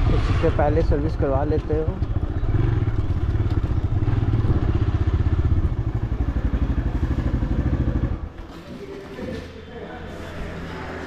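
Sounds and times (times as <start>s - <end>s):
motorcycle engine running low revs: 0.0s - 8.4s.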